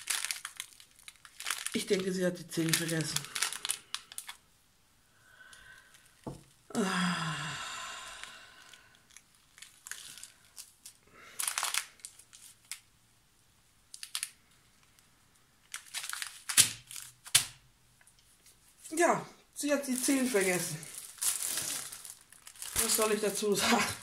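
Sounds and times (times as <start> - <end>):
plastic bags crinkling: 0.0 - 4.4, 5.4 - 6.6, 8.1 - 12.9, 13.9 - 17.6, 19.0 - 24.0.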